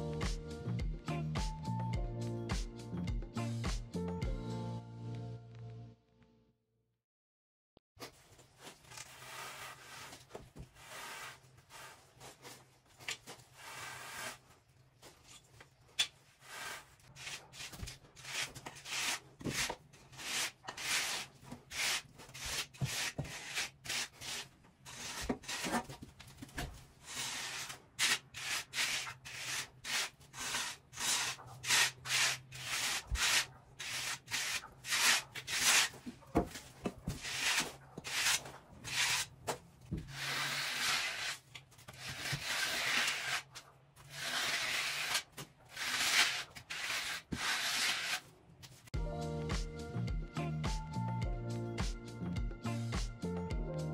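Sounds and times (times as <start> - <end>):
board scraping wet concrete: 27.1 - 39.3, 44.1 - 48.2.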